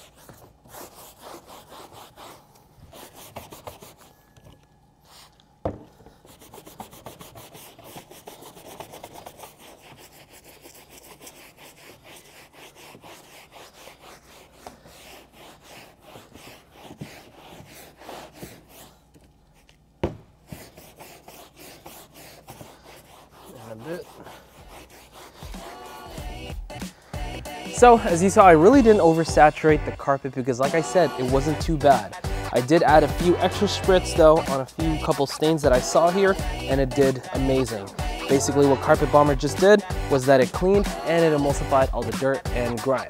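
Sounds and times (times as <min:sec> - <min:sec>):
brush scrubbing carpet mat: 0:06.2 - 0:19.0, 0:20.5 - 0:26.6, 0:32.6 - 0:43.0.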